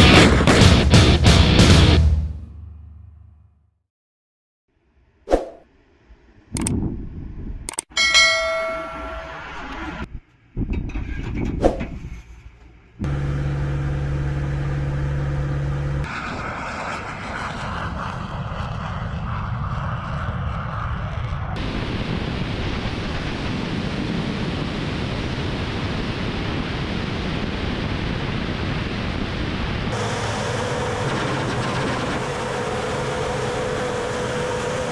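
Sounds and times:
low engine hum: 0:13.0 - 0:24.2, 0:28.9 - 0:34.9
jet engines rushing: 0:13.0 - 0:34.9.

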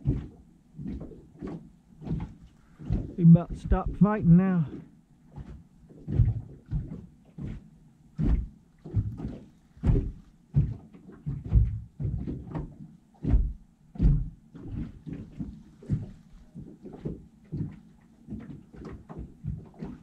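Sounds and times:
knocks inside metal boat: 0:08.2 - 0:20.0.

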